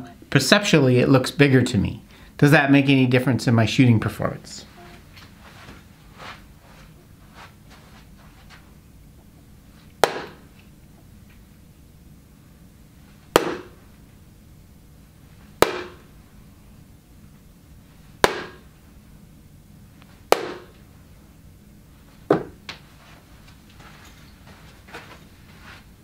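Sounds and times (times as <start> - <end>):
darts clacking on dartboard: 13.4 - 13.8, 15.6 - 16.0, 18.2 - 18.6, 20.3 - 20.7.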